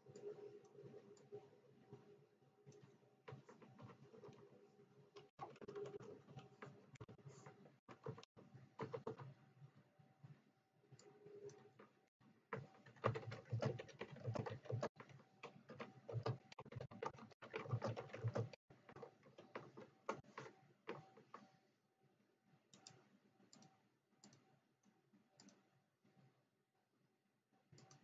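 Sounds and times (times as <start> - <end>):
typing on computer keyboard: 5.2 - 9.3, 12.5 - 21.5.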